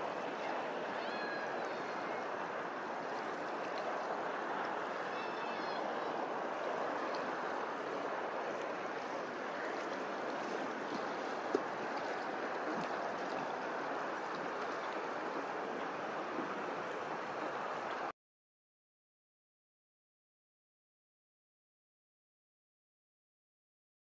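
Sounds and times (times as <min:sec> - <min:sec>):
water lapping: 0:00.0 - 0:18.1.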